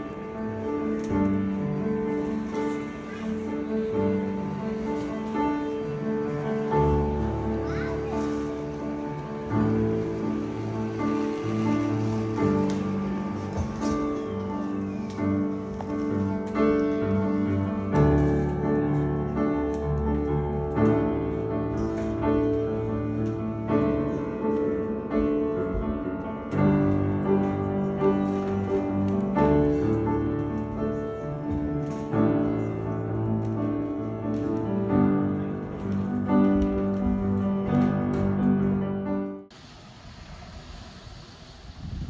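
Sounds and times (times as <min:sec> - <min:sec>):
piano playing slow chords: 0:00.0 - 0:39.6.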